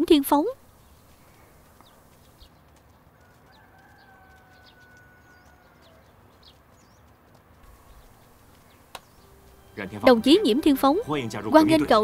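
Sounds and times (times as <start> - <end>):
small birds chirping: 0.0 - 12.0
rooster crowing: 3.2 - 6.2.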